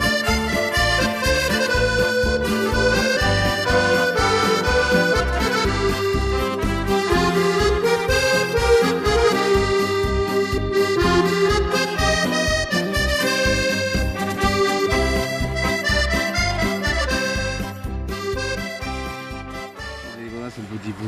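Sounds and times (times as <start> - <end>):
accordion music: 0.0 - 21.0.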